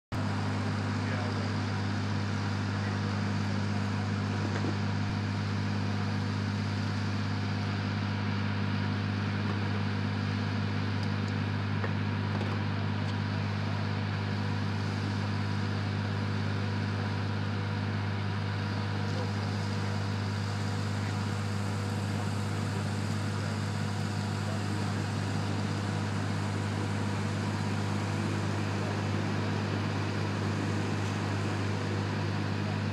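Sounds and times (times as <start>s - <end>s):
heavy machinery droning: 0.1s - 32.9s.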